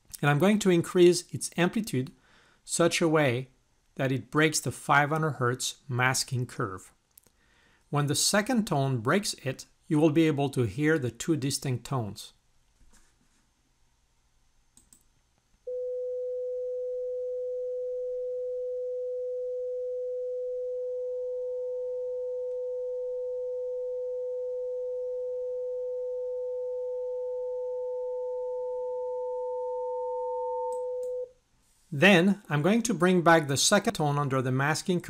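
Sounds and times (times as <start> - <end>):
sine test tone: 15.6 - 31.4
quieter higher tone: 15.7 - 31.3.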